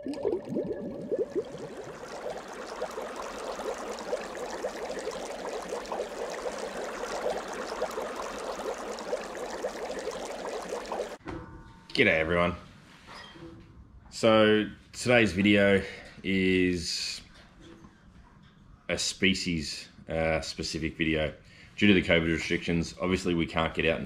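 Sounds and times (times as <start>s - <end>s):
water bubbling: 0.0s - 11.2s.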